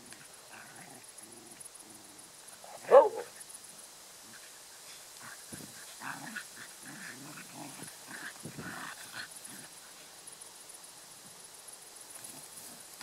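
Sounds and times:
dogs growling playfully: 5.2s - 9.8s.

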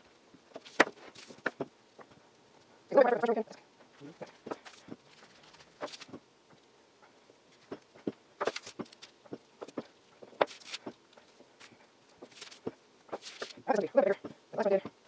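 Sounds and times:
paper crinkling: 0.5s - 1.5s, 4.2s - 6.2s, 7.5s - 13.8s
paper rustling: 0.5s - 2.2s, 4.2s - 6.2s, 7.5s - 13.8s.

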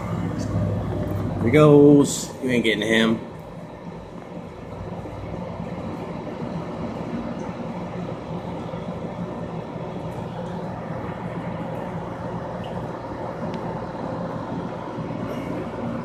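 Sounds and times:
aquarium pump humming: 0.0s - 16.0s
water bubbling: 3.4s - 16.0s.

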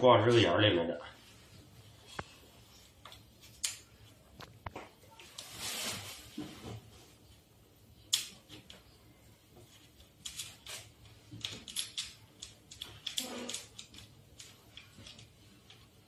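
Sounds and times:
small metal clicks and rattles: 10.2s - 16.0s.

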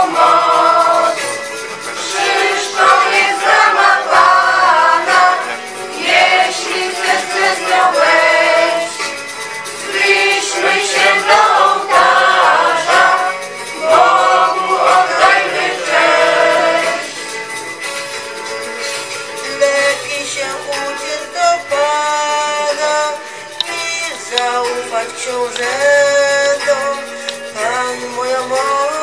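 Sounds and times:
group singing a religious song: 0.0s - 17.3s.

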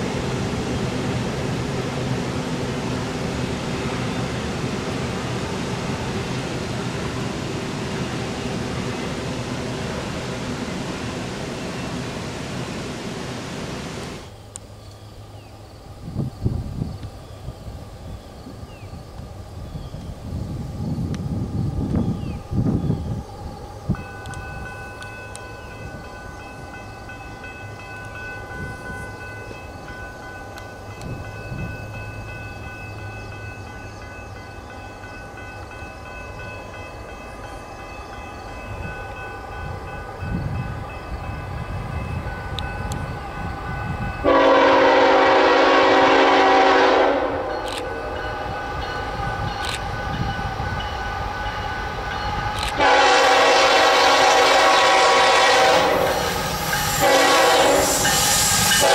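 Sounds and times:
diesel train rumble: 0.0s - 58.9s
locomotive air horn blast: 44.2s - 47.6s, 52.8s - 58.9s.

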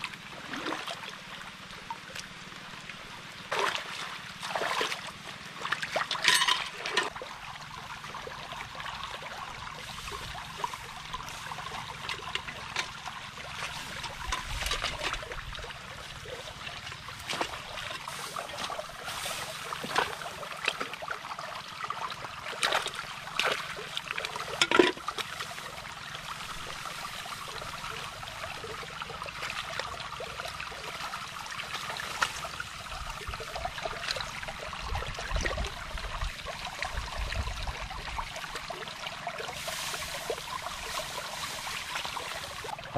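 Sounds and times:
water splashes: 0.0s - 42.9s
hands sloshing through muddy water: 0.3s - 1.2s, 3.5s - 6.3s, 9.6s - 30.0s, 38.4s - 42.9s.

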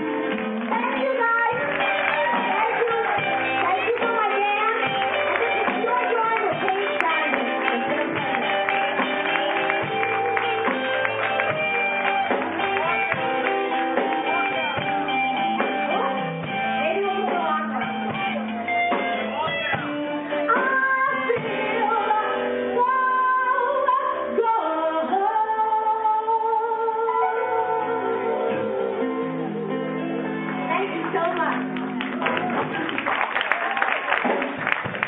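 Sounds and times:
live band playing: 0.0s - 35.0s
woman singing with vibrato: 20.5s - 29.0s.

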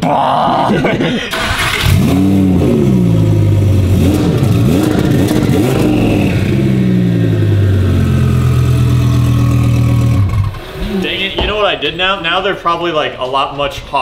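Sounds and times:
car engine revving and idling: 1.3s - 11.2s.

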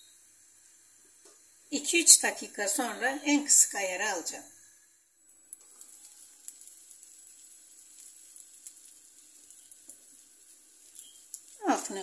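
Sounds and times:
pastry sizzling in a pan: 0.0s - 12.0s
small crackles: 5.2s - 12.0s.

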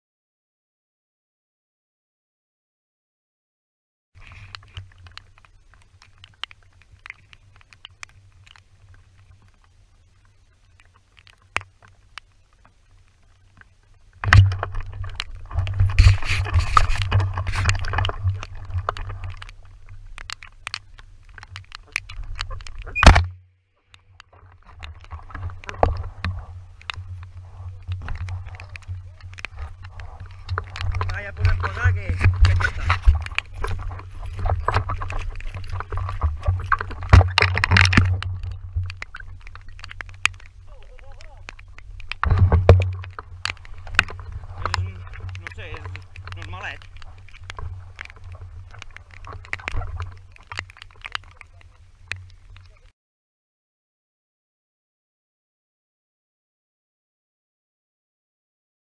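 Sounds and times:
footsteps in dry grass: 4.2s - 23.0s, 24.4s - 52.7s
faint clicks: 4.2s - 52.9s
rustling of vegetation and clothing: 4.2s - 52.9s
wind rumble on microphone: 14.2s - 23.2s, 24.6s - 52.9s.

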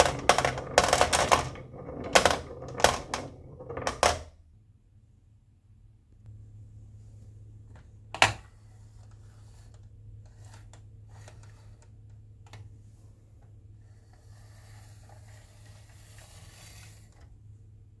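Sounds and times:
marbles clicking inside plastic toy: 0.0s - 4.3s
low steady hum: 0.0s - 18.0s
plastic toy rustling: 14.1s - 17.3s.

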